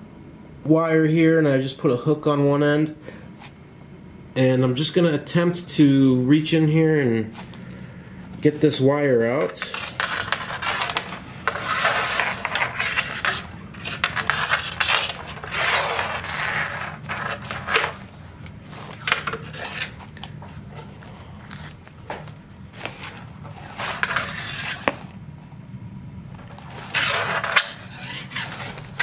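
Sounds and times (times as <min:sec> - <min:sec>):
low hum: 0:07.4 - 0:29.0
wire scraping and rattling: 0:09.3 - 0:25.2, 0:26.3 - 0:29.0.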